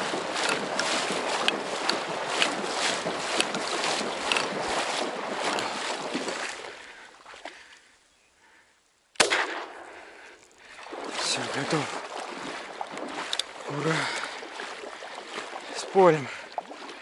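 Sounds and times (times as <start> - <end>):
rustling movement: 0.0 - 6.6.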